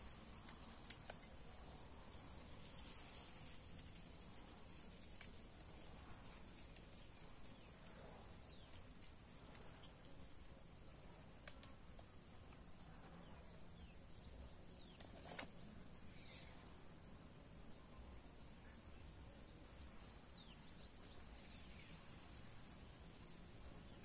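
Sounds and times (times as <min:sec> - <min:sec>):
small birds chirping: 0:00.0 - 0:24.0
sharp clicks: 0:00.4 - 0:01.3, 0:11.3 - 0:11.8
high insect drone: 0:15.4 - 0:24.0.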